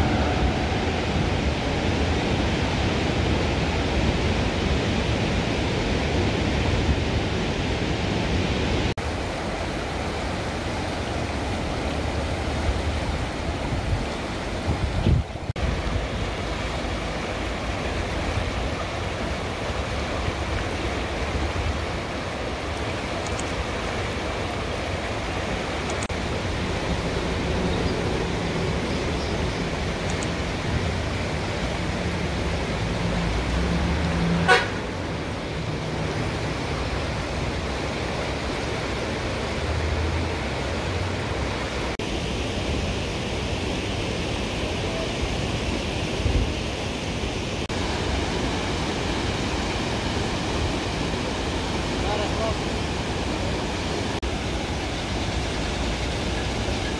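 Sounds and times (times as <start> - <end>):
river rushing over rocks: 0.0 - 56.9
road traffic: 0.0 - 56.9
sharp click: 23.2 - 23.6.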